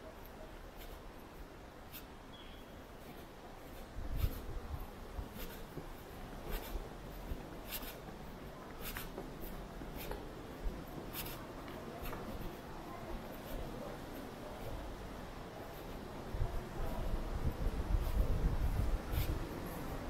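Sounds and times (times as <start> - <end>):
footsteps scuffing on a trail: 0.3 - 15.0
low rumble on microphone: 16.2 - 20.0.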